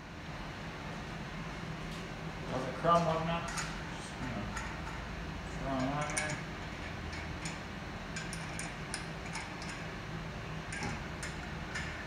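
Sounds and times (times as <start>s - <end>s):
metallic clicks of lug nuts: 5.8s - 7.6s.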